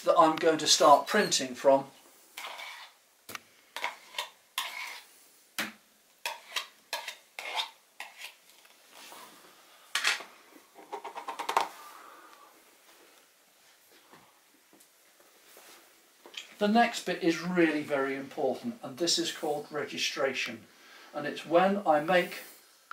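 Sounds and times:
palette knife scraping ink pot: 2.4s - 3.0s, 3.8s - 5.1s, 6.2s - 8.4s.

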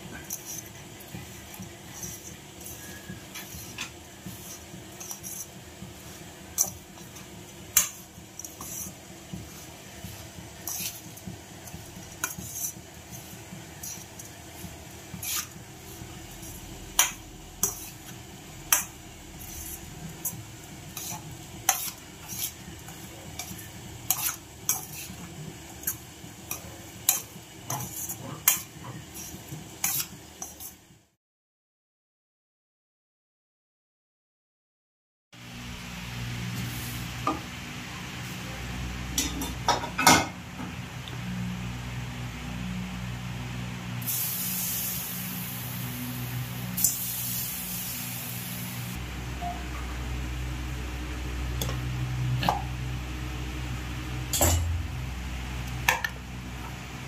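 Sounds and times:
spoon scraping in steel bowl: 1.9s - 5.5s, 10.6s - 11.1s, 12.2s - 14.3s, 15.1s - 15.6s, 16.4s - 18.1s, 18.7s - 30.8s.

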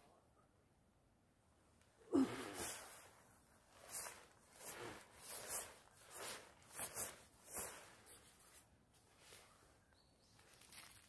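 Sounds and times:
padded jacket rustling: 2.6s - 9.6s.

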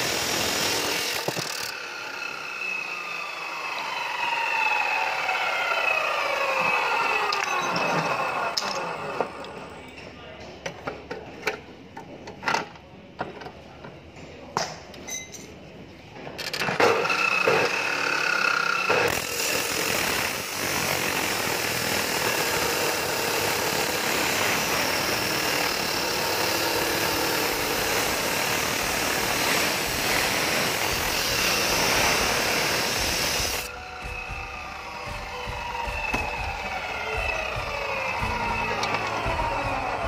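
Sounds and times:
chop saw motor whining: 0.0s - 9.7s, 16.7s - 40.0s
saw disc grinding steel: 19.1s - 33.7s.

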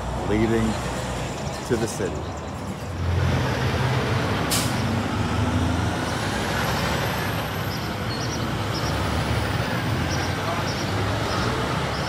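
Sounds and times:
diesel truck engines passing: 0.0s - 12.0s
air brake hiss: 4.5s - 4.8s.

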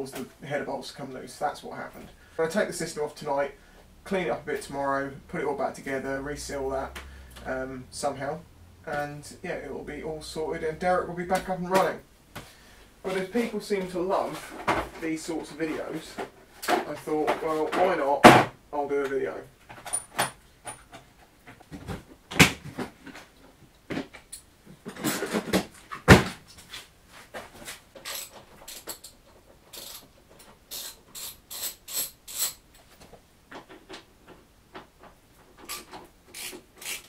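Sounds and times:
hand tools and metal parts clattering: 19.6s - 37.0s
scraping or rattling: 26.6s - 32.6s.

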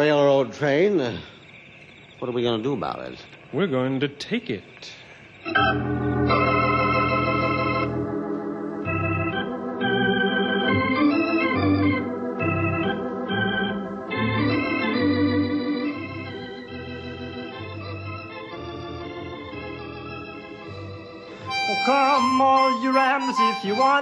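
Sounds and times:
organ playing held chords: 5.4s - 24.0s.

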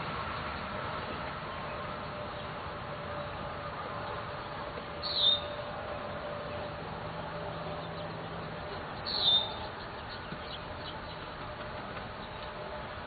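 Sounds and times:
outdoor background noise: 0.0s - 13.0s
bird chirping: 4.0s - 12.6s.

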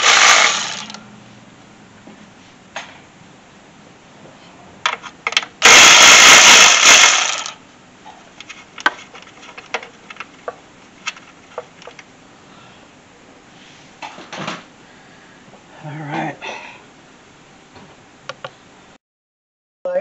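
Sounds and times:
power tool burst: 0.0s - 1.0s, 5.6s - 7.6s.

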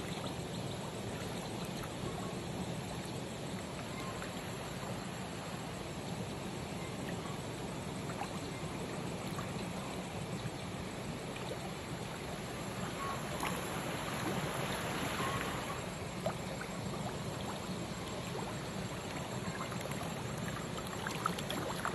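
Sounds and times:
flowing water rushing: 11.1s - 21.9s
small water splashes: 11.2s - 21.9s.

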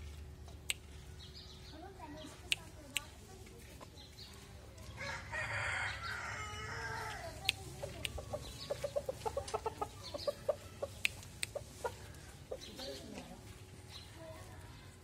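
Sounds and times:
rooster crowing: 5.0s - 7.3s
rooster clucking: 6.5s - 12.8s
sharp clicks: 10.9s - 11.6s.

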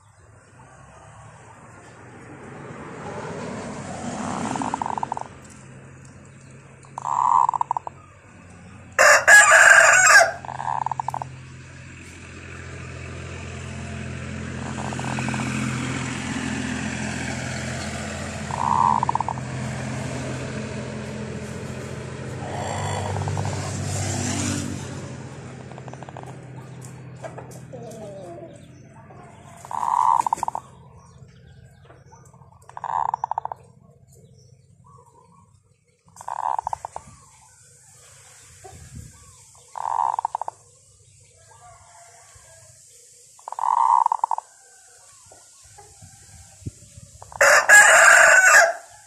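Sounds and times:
short bird calls: 6.9s - 8.2s, 10.3s - 11.3s, 18.5s - 19.4s, 29.4s - 31.1s, 32.6s - 33.8s, 36.1s - 37.5s, 38.2s - 40.8s, 43.3s - 44.5s
rooster crowing: 8.9s - 11.2s, 41.4s - 42.8s, 47.3s - 49.0s.

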